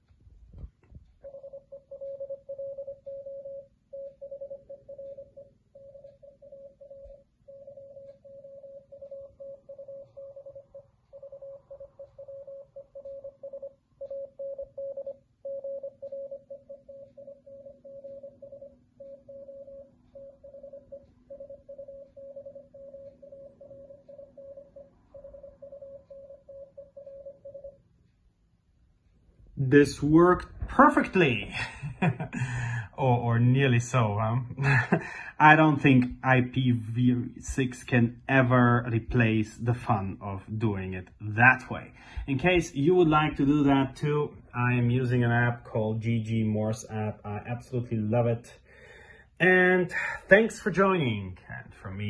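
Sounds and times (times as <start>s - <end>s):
morse code beeps: 1.2s - 27.8s.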